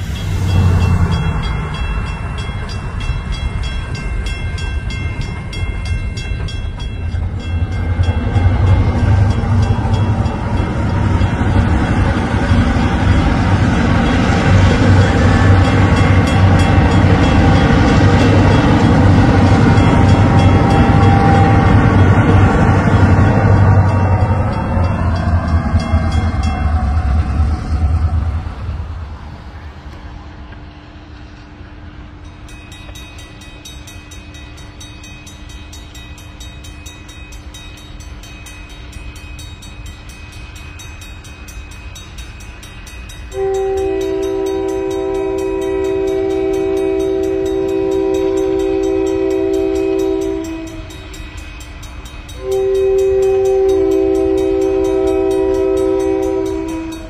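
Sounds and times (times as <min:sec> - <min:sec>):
train air horn blasts: 0:14.8 - 0:24.3, 0:43.3 - 0:51.1, 0:52.4 - 0:57.0
low rumble: 0:19.1 - 0:31.4.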